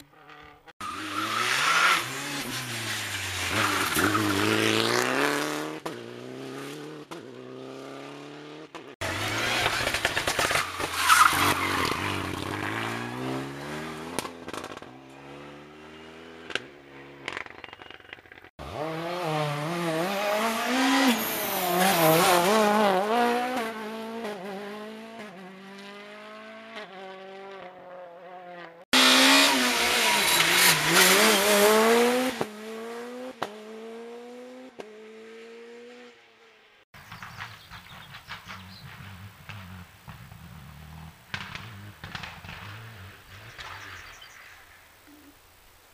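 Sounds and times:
rally cars accelerating hard: 0.1s - 16.6s, 18.6s - 36.1s.

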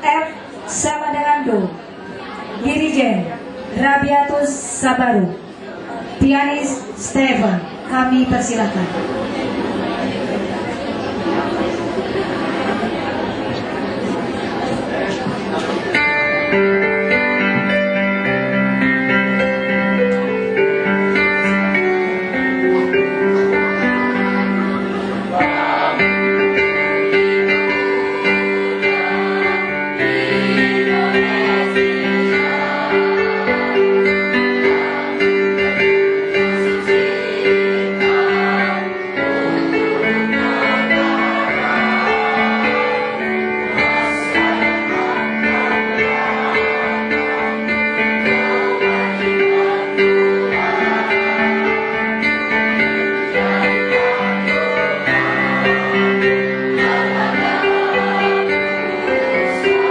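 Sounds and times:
piano: 0.0s - 59.9s
choir singing in parts: 23.4s - 59.9s.

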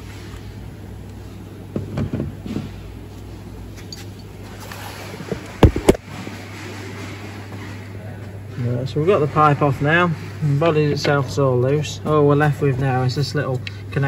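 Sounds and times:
steady low hum: 0.0s - 14.0s
sharp thumps: 5.3s - 6.0s.

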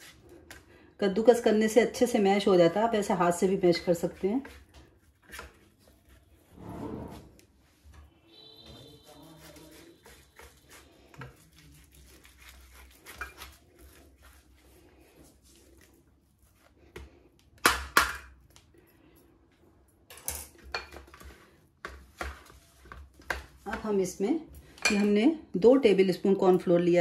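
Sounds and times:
grater rasping on potato: 9.0s - 14.8s.

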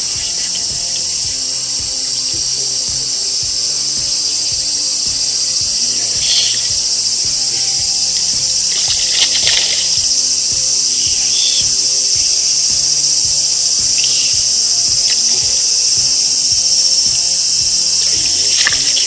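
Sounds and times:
background music with steady beat: 0.0s - 19.0s
constant high hiss: 0.0s - 19.0s
fish splashing at surface: 8.7s - 10.0s.

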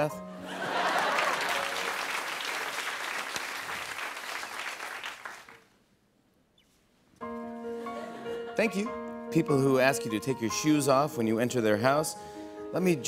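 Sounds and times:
audience applauding: 0.5s - 5.7s.

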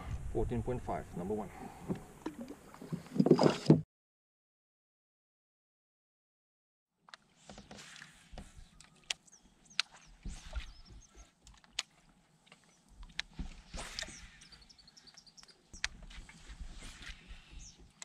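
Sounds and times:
wind rumble on microphone: 0.0s - 2.0s
birds chirping: 8.3s - 12.0s, 12.6s - 18.0s.

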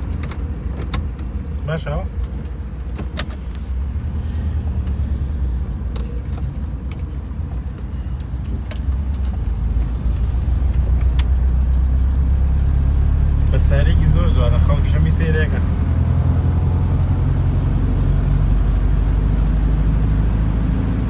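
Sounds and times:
light rattles in car cabin: 0.0s - 3.9s, 5.8s - 12.6s
car engine and road drone: 0.0s - 21.0s.

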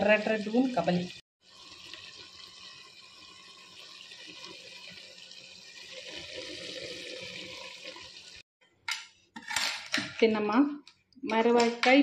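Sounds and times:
food sizzling in clay pot: 0.0s - 8.4s.

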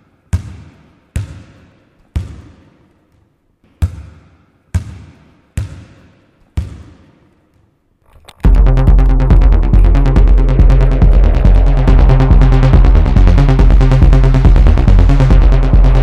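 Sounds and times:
basketball bouncing on gym floor: 0.3s - 7.7s.

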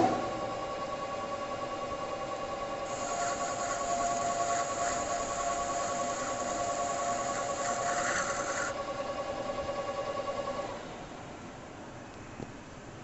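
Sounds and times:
lathe whining: 1.8s - 8.8s
cutting tool hissing and scraping metal: 2.9s - 8.8s.

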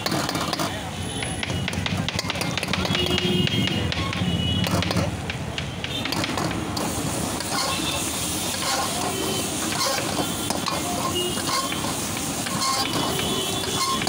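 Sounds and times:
frying sizzle in a wok: 6.8s - 14.0s
metal ladle scraping a wok: 6.8s - 14.0s.

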